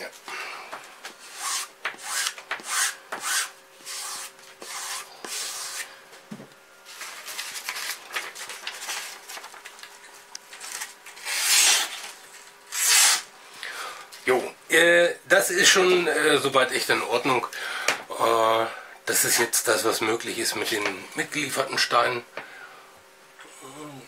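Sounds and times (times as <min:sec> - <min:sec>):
paper rustling: 0:06.9 - 0:13.0.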